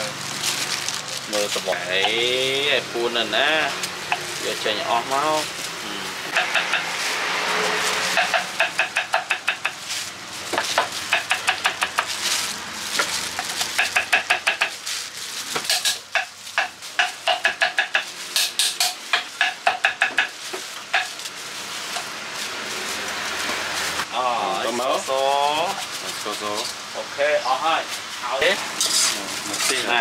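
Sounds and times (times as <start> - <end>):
knife chopping on wooden board: 6.3 - 6.9, 8.1 - 9.8, 10.5 - 12.2, 13.0 - 14.8, 15.5 - 21.1.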